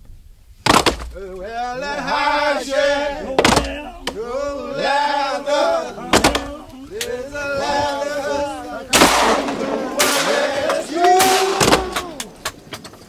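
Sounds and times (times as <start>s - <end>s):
shotgun shots: 8.9s - 12.4s.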